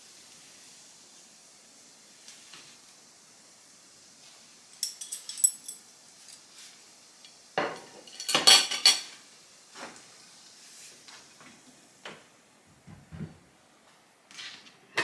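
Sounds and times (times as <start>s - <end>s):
kitchenware clinking and clattering: 4.8s - 6.4s, 7.6s - 9.2s.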